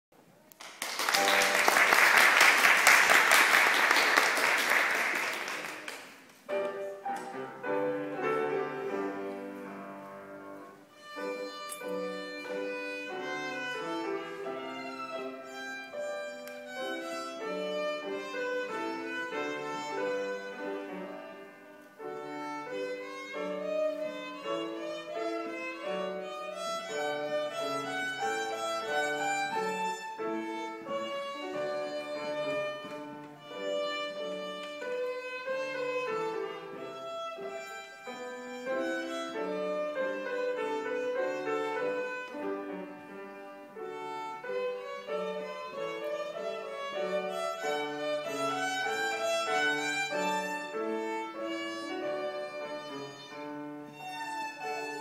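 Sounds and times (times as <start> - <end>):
piano: 0.1 - 55.0
audience applause: 0.6 - 6.3
violin melody: 1.1 - 5.6, 6.4 - 55.0.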